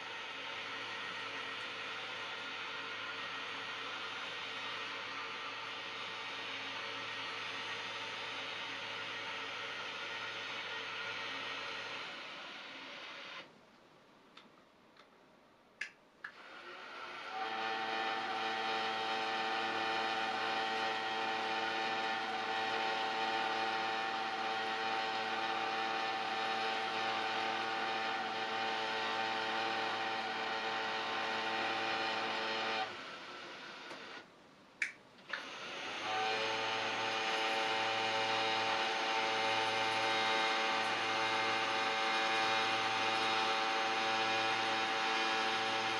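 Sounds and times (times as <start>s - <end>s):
blind motor whining: 0.0s - 13.5s, 16.4s - 34.2s, 35.3s - 45.9s.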